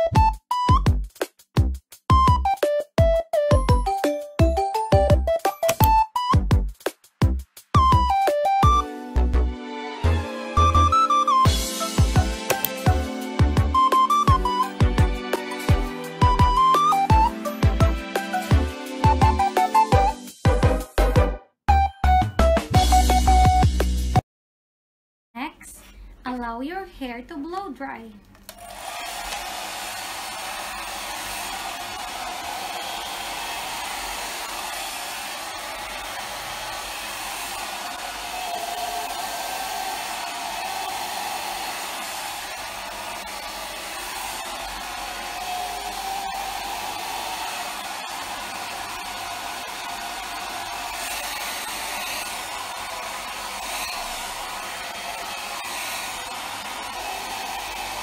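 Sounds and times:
hair dryer running: 28.6s - 58.0s.

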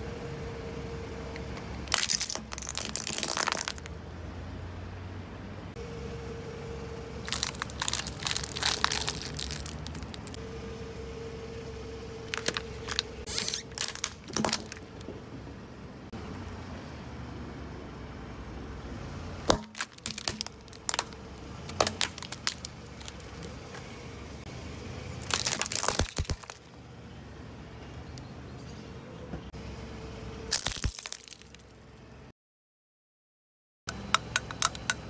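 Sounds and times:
plastic toy cracking under tyre: 1.9s - 3.9s, 7.3s - 10.4s, 12.3s - 15.1s, 19.5s - 23.5s, 25.2s - 26.7s, 30.5s - 31.6s.

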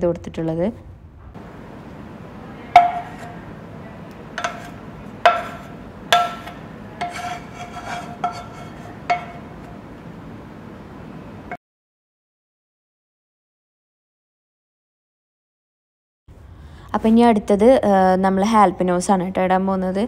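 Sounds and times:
cookware knocking with ringing: 2.7s - 3.4s, 4.4s - 9.6s
sauce scraped from a pan: 4.4s - 9.4s.

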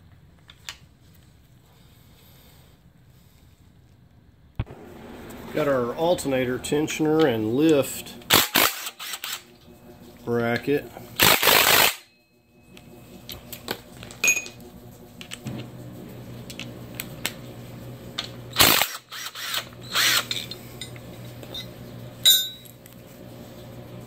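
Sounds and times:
electric ratchet motor whirring: 8.3s - 9.5s, 11.2s - 12.0s, 18.5s - 20.6s.

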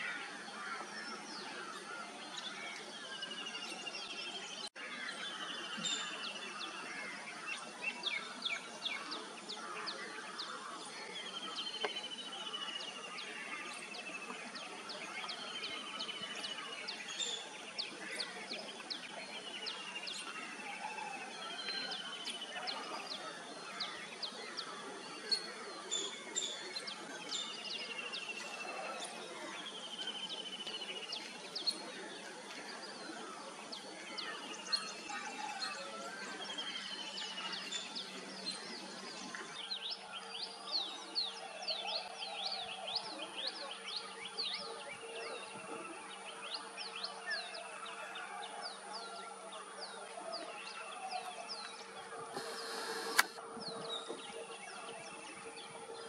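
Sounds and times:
background noise: 0.0s - 56.0s.

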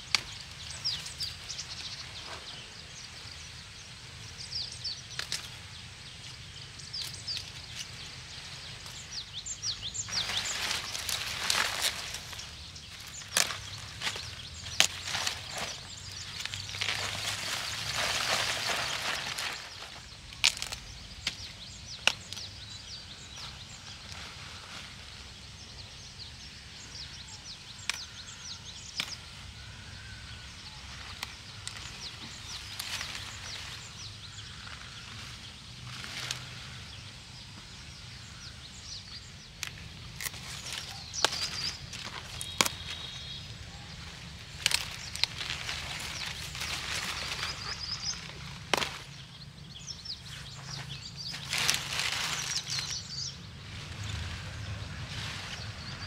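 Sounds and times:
leaves rustling: 0.0s - 26.8s, 27.6s - 56.0s
birds chirping: 0.0s - 56.0s
stalks snapping and knocking: 48.7s - 49.0s.

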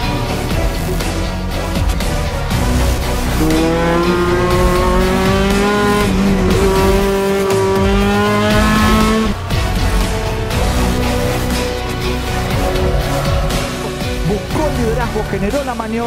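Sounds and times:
race car engine at high revs: 2.4s - 10.2s.

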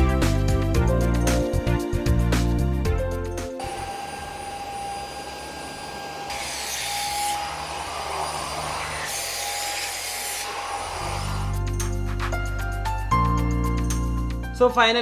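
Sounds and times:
vacuum cleaner motor whine: 3.6s - 11.5s.

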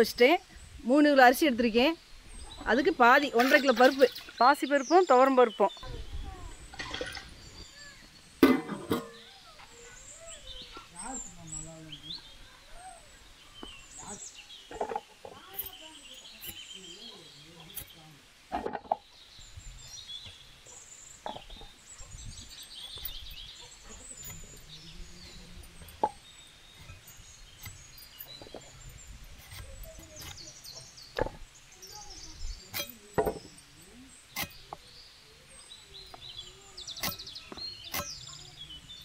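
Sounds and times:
birds chirping: 0.0s - 39.0s
vegetables cut on blade: 36.9s - 38.3s.

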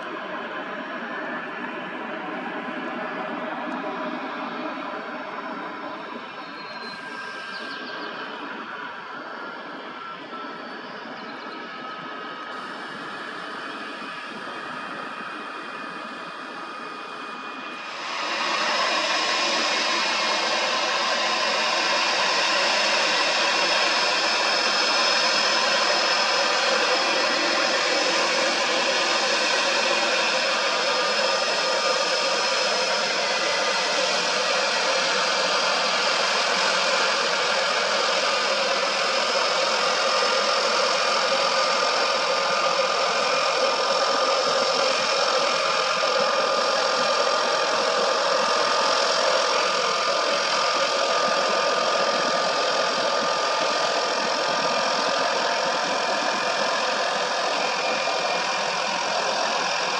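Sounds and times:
turboprop engine whine: 0.0s - 59.9s.

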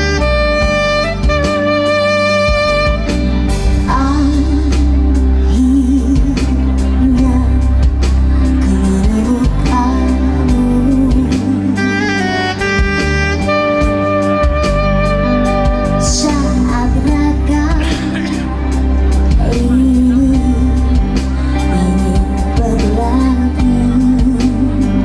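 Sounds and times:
soprano saxophone: 0.0s - 5.6s, 11.3s - 22.6s
keyboard accompaniment: 0.0s - 25.0s
woman singing: 3.8s - 12.3s, 16.0s - 25.0s.

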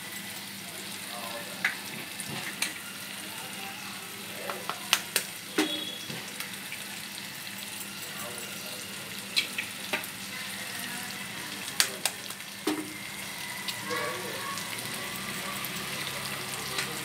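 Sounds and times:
vegetables sizzling in oil: 0.0s - 17.0s
eggs cracking on a pan: 4.4s - 6.6s, 9.3s - 10.1s, 11.6s - 13.0s.

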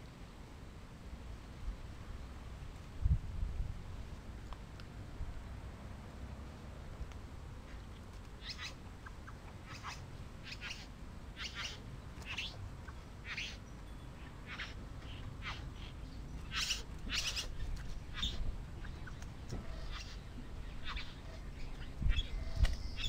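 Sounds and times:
bird buzzy calls: 8.4s - 23.0s.

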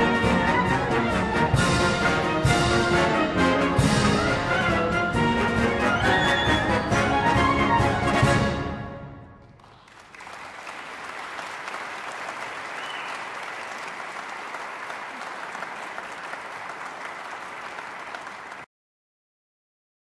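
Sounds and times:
concert band playing a march: 0.0s - 9.2s
audience applause: 9.4s - 18.7s.

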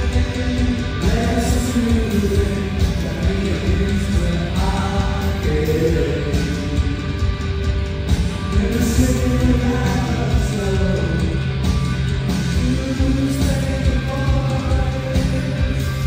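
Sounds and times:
bass guitar: 0.0s - 16.0s
drums: 0.0s - 16.0s
electric guitar: 0.0s - 16.0s
sung vocals: 0.0s - 16.0s.

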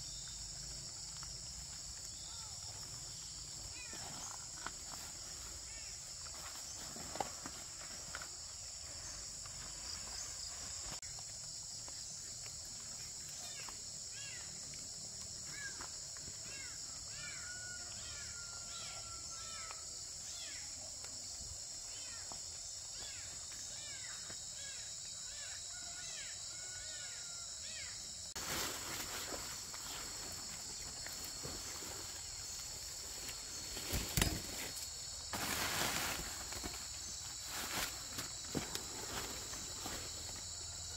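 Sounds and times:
rustling: 28.4s - 40.5s.

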